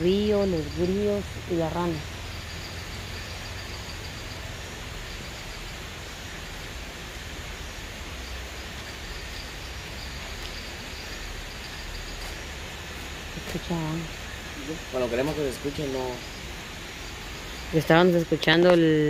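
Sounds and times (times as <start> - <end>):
crickets chirping: 0.0 - 19.0
river rushing: 2.2 - 13.4.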